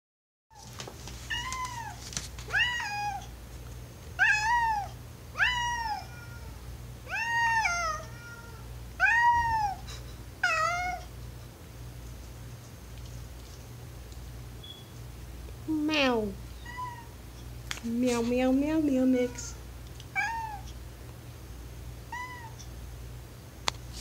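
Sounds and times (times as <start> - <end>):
cat meowing: 1.3 - 3.3, 4.2 - 9.8, 10.4 - 11.1, 15.7 - 17.2, 19.2 - 20.8, 22.1 - 22.6.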